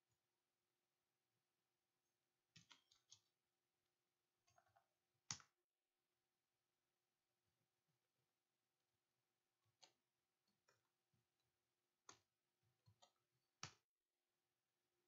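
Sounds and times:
faint keyboard typing: 0:04.4 - 0:05.6.

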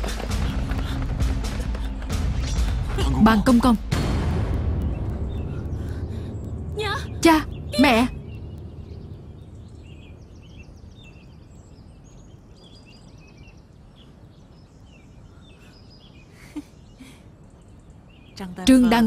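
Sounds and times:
birds chirping and trilling: 0:00.0 - 0:19.0.

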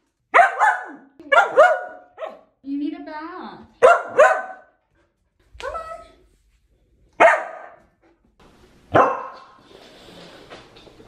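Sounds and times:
dog barking: 0:00.3 - 0:02.5, 0:03.8 - 0:04.8, 0:07.2 - 0:07.8, 0:08.9 - 0:09.6.

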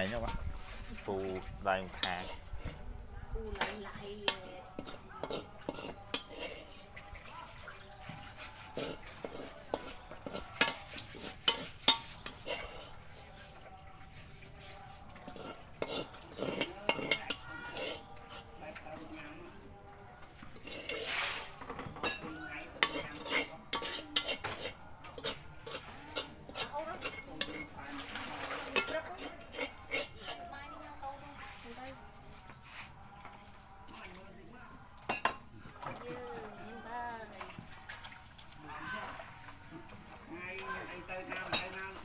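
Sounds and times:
metal ladle scraping a wok: 0:00.0 - 0:02.9, 0:03.6 - 0:19.5, 0:20.2 - 0:31.8.

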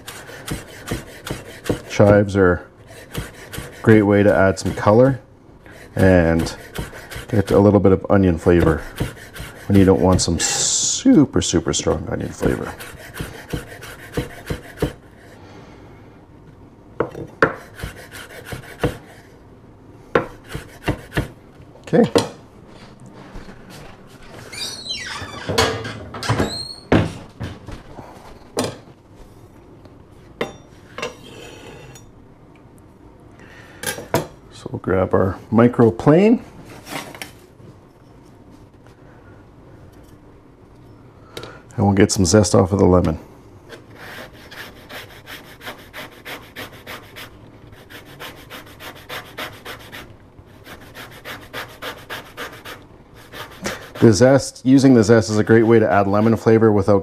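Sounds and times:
zester rasping lemon rind: 0:02.9 - 0:05.0, 0:05.8 - 0:07.7, 0:08.5 - 0:10.7, 0:12.4 - 0:15.0.

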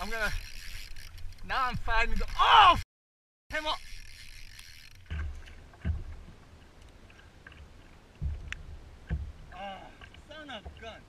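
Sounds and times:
water slapping against a hull: 0:05.0 - 0:11.0
dull thumps: 0:08.2 - 0:10.8.

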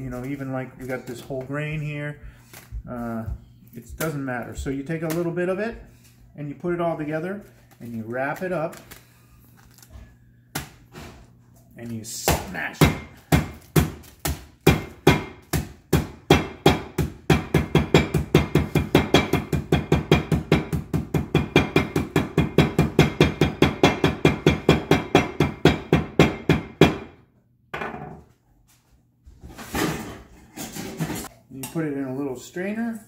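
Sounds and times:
mallet pounding bread: 0:12.2 - 0:27.2.

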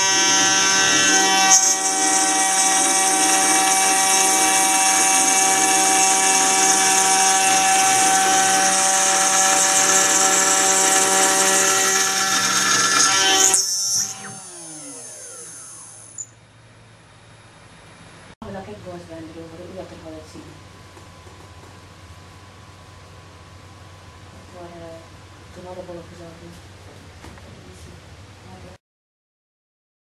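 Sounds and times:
hissing metal cutting: 0:00.0 - 0:16.3
mill spindle whine: 0:00.0 - 0:25.8.

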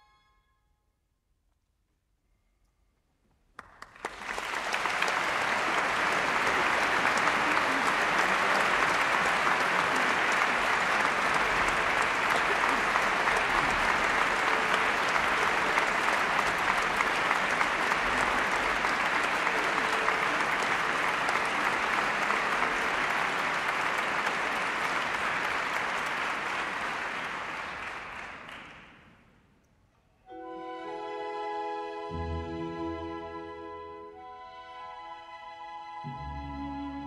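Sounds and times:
audience applauding: 0:03.6 - 0:29.2.

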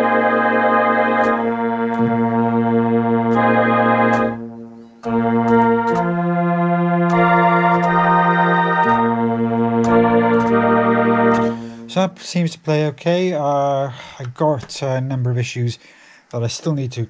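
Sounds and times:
string synthesizer chords: 0:00.0 - 0:12.4.

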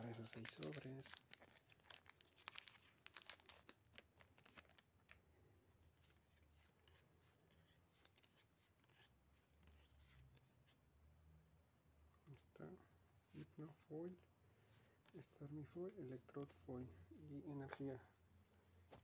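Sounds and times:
foil wrapper crackling and tearing: 0:00.0 - 0:05.1.

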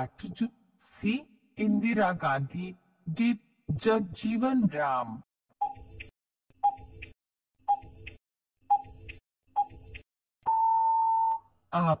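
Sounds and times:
countdown timer ticks: 0:05.6 - 0:10.6.

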